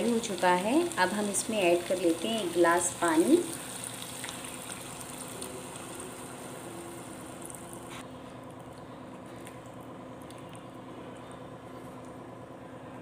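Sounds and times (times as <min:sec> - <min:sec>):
low mechanical hum: 0:00.0 - 0:13.0
water hissing into hot pot: 0:01.9 - 0:08.0.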